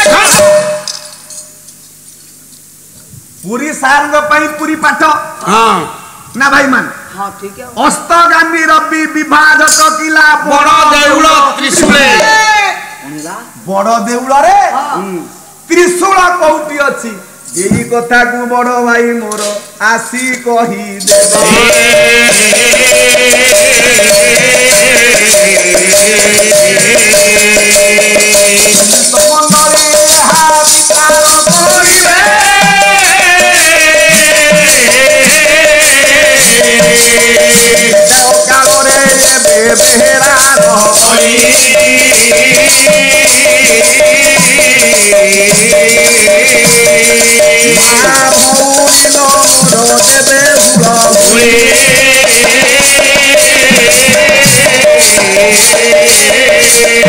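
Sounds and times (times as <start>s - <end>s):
hand cymbals jingling: 0.0s - 3.0s, 21.0s - 57.0s
wavering melody: 21.1s - 57.0s.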